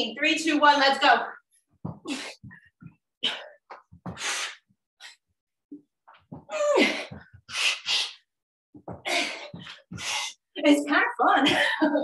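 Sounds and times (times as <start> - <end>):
feet landing thumps: 1.8 - 4.5, 6.0 - 7.5, 8.7 - 10.3.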